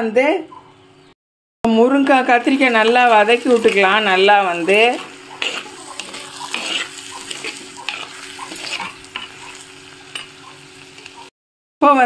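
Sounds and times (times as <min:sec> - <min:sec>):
vegetables sizzling in oil: 0:02.0 - 0:11.3
spoon scraping a clay pot: 0:02.8 - 0:10.4.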